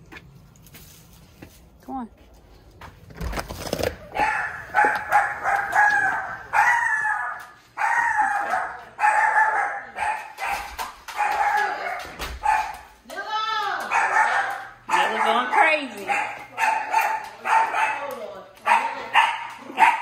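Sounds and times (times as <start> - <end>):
dog barking: 4.1 - 12.9, 13.9 - 20.0.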